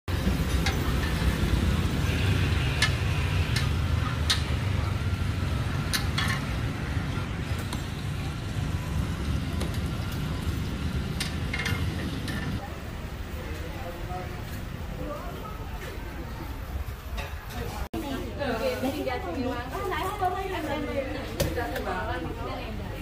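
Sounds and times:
metal cooking utensils clinking: 0:05.7 - 0:06.8.

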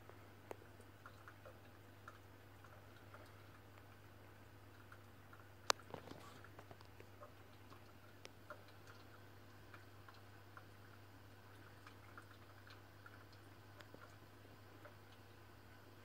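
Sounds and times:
faint ticks and clicks: 0:00.0 - 0:16.0.

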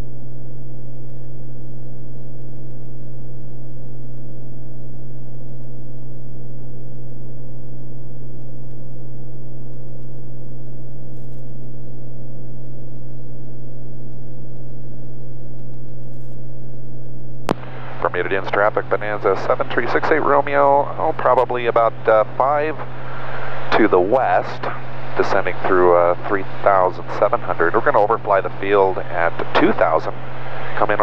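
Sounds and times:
airplane engine and propeller drone: 0:17.5 - 0:31.0.

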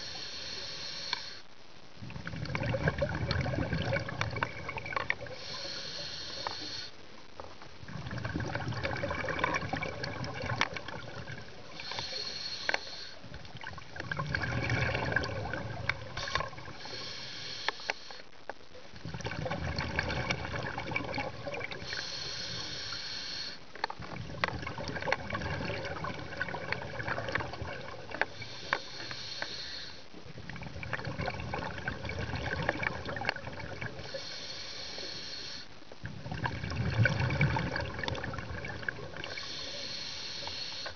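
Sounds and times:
regulator inhalation hiss: 0:00.0 - 0:01.5, 0:05.3 - 0:07.0, 0:11.6 - 0:13.3, 0:16.2 - 0:18.3, 0:21.8 - 0:23.6, 0:28.3 - 0:30.1, 0:34.0 - 0:35.8, 0:39.2 - 0:40.9
exhaled air bubbling: 0:02.0 - 0:06.8, 0:07.7 - 0:17.2, 0:18.8 - 0:34.6, 0:35.5 - 0:40.9.

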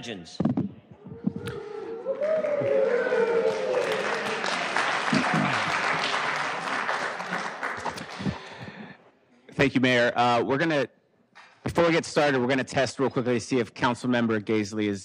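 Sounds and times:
audience applauding: 0:01.5 - 0:09.0.

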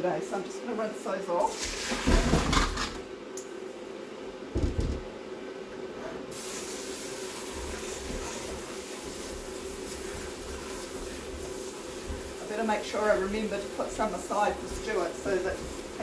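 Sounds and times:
tap water running: 0:01.4 - 0:03.0, 0:06.3 - 0:16.0.

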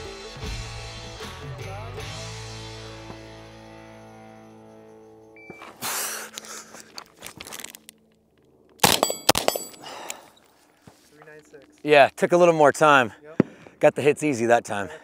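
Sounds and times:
background music: 0:00.0 - 0:05.6
shot timer beep: 0:05.4 - 0:05.7
clothing and gear rustling: 0:05.5 - 0:07.9, 0:10.3 - 0:11.8
rifle shots: 0:08.8 - 0:09.8
high ringing: 0:08.8 - 0:10.4.

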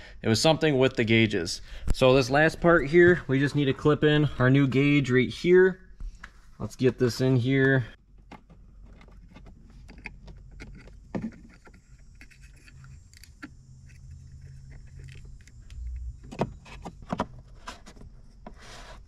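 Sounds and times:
low steady hum: 0:06.6 - 0:18.5
plastic clicks and rattles: 0:08.2 - 0:17.3.

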